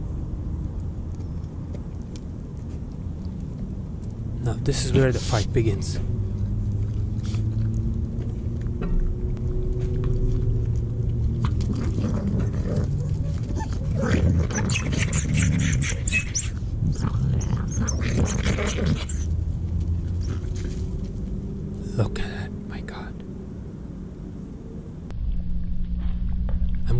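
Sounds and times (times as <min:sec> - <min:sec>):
low hum: 0:00.0 - 0:26.9
coyotes snarling and growling: 0:04.3 - 0:25.0.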